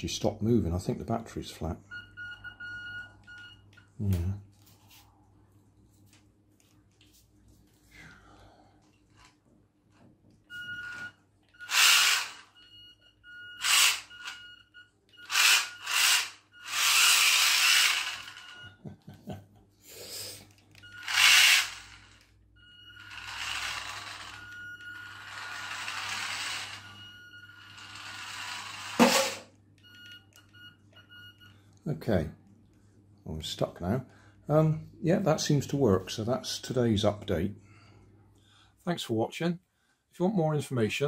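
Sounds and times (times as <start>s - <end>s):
toy car electric motor whirring: 10.8s - 12.6s, 13.6s - 14.4s, 15.2s - 18.6s, 20.5s - 29.4s
sharp knock: 29.0s - 29.5s.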